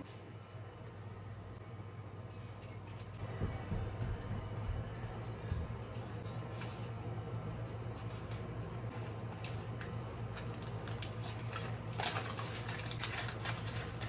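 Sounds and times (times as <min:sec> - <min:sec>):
steady low hum: 0:00.0 - 0:14.0
aluminium foil crinkling: 0:08.0 - 0:14.0.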